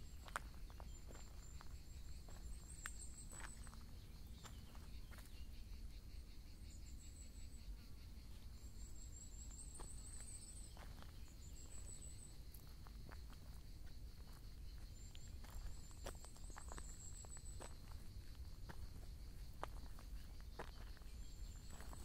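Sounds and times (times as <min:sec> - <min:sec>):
insect chirring: 0:00.0 - 0:22.0
very high insect trills: 0:00.0 - 0:22.0.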